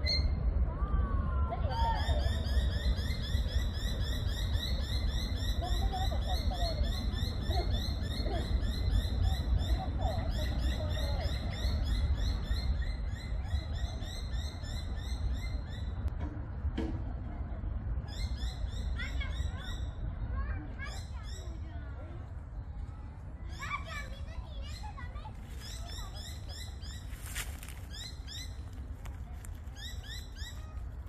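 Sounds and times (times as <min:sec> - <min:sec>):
constant low rumble: 0:00.0 - 0:31.0
low wavering bird calls: 0:01.6 - 0:16.0, 0:23.4 - 0:28.8.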